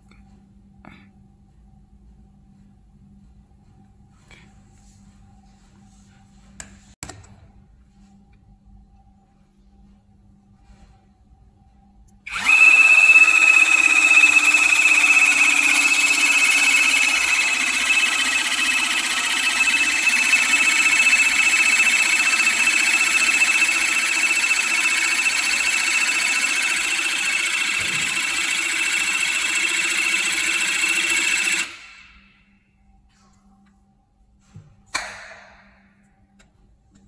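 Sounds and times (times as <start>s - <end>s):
crimping tool pump whining: 12.3s - 31.8s.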